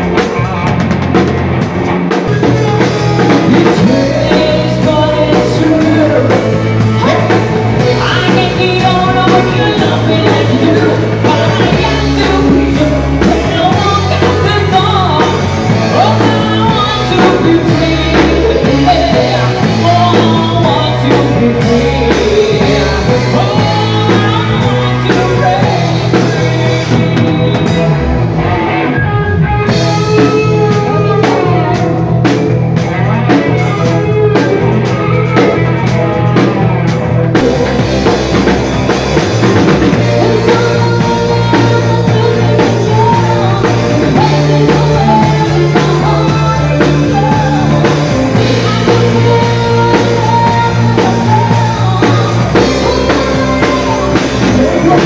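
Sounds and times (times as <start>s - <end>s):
drum kit with cymbals: 0.0s - 28.6s, 29.4s - 55.0s
guitar: 0.0s - 55.0s
person singing: 2.1s - 55.0s.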